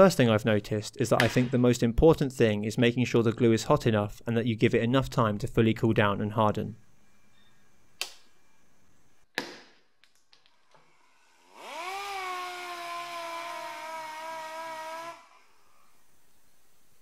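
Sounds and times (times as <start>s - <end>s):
air sander whining: 10.8s - 16.9s.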